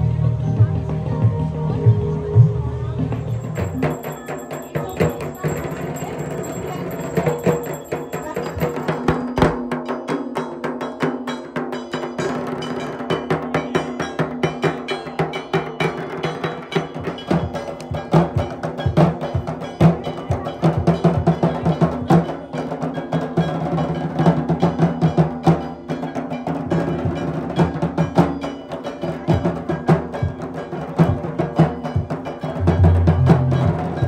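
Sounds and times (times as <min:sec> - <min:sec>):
barrel drums rapid beat: 0:03.3 - 0:34.0
deep booming drum strokes: 0:31.0 - 0:34.0.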